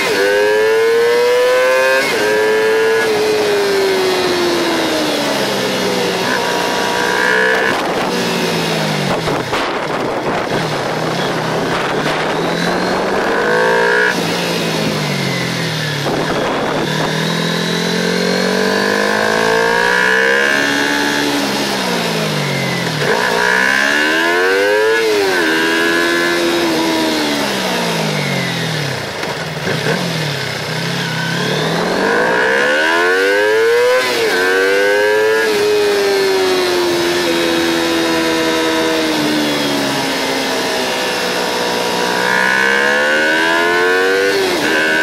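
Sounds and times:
motorcycle engine revving: 0.0 - 45.0.

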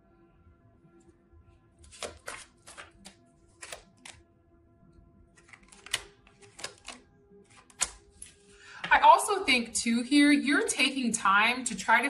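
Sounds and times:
cards snapping and tapping: 1.9 - 4.2, 5.4 - 8.4.

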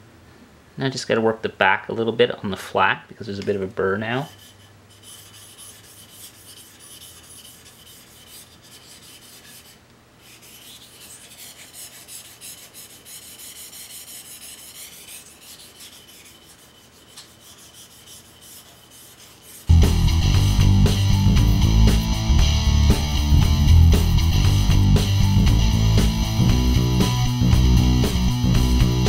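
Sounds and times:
knife scraping on whetstone: 4.2 - 19.7.

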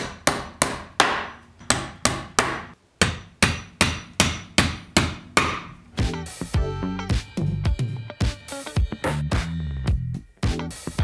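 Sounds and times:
hammer striking a nail into wood: 0.0 - 5.7.

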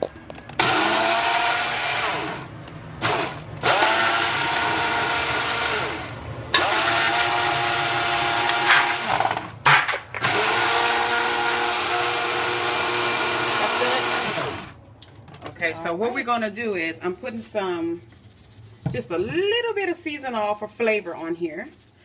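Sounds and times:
blender motor whining: 0.6 - 9.5, 10.2 - 14.8.

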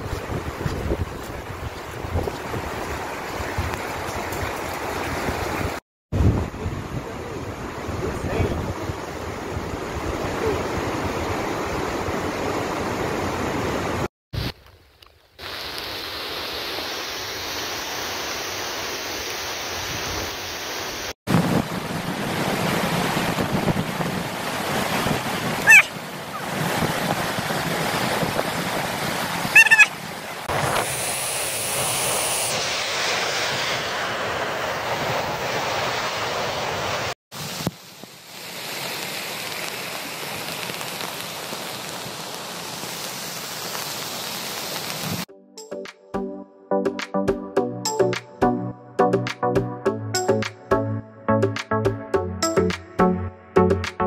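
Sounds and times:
wind buffeting microphone: 0.0 - 12.5, 21.3 - 29.6
waterfall and river rushing: 0.0 - 14.1, 15.4 - 45.3
brief high-pitched sounds: 29.6 - 29.9.

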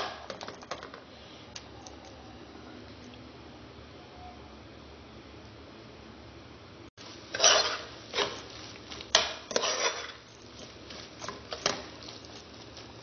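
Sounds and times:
utensil scraping metal pot: 7.3 - 13.0.

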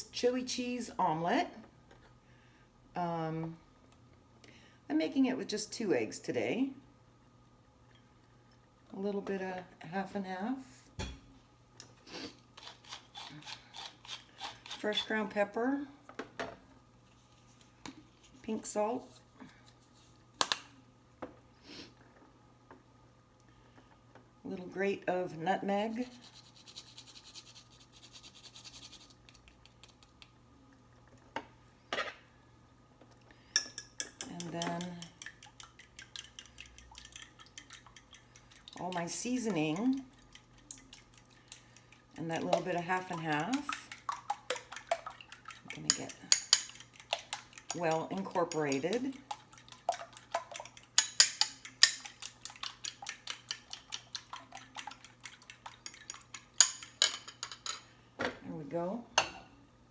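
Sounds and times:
fork beating eggs in bowl: 12.5 - 15.3, 25.9 - 30.4, 33.5 - 57.9.

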